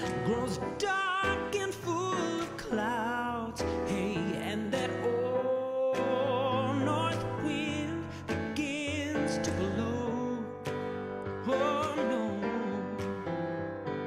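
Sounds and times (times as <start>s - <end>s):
slow sung melody: 0.0s - 14.0s
instrumental accompaniment: 3.6s - 14.0s.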